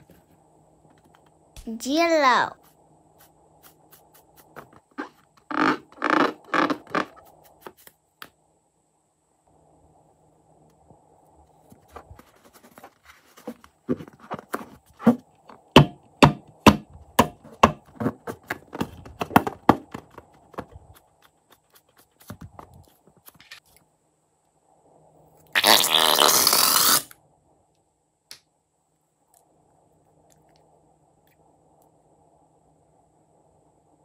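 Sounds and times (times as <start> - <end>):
slime balloon squeaking: 5.0 - 7.3, 25.6 - 27.1
slime rushing out of balloon: 25.6 - 27.1.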